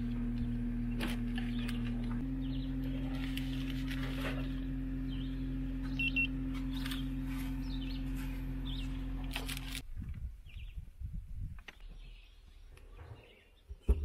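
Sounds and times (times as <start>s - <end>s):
steady low hum: 0.0s - 10.2s
birds chirping: 0.1s - 9.8s, 10.4s - 10.9s, 11.6s - 14.0s.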